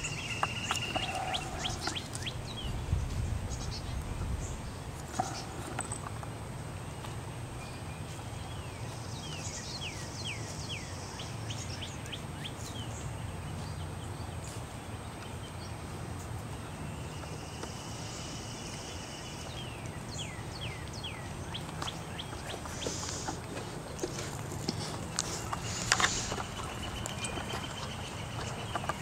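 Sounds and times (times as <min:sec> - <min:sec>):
songbirds whistling: 0:00.0 - 0:02.9, 0:16.8 - 0:29.0
steady low rumble: 0:00.0 - 0:07.7.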